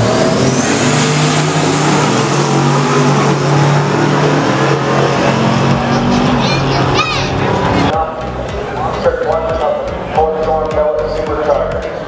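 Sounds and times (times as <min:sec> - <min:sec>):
racing car engines at high revs: 0:00.0 - 0:08.9.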